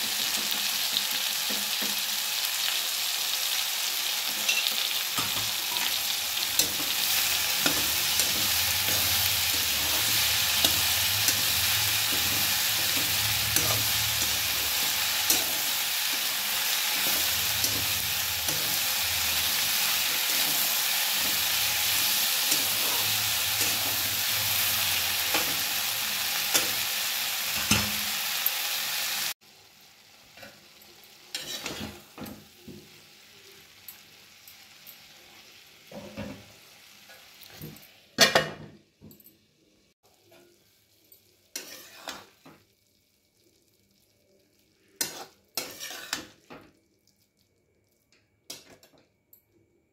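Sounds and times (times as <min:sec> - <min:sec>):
vegetables sizzling in a wok: 0:00.0 - 0:38.7, 0:39.8 - 0:49.0
spatula scraping a pan: 0:04.3 - 0:26.9, 0:31.3 - 0:32.1, 0:41.5 - 0:42.4, 0:45.0 - 0:46.6.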